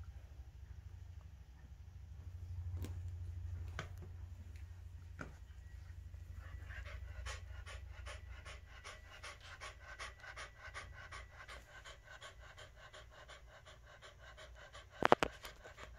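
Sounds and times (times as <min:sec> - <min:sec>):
dog panting: 0:05.2 - 0:15.9.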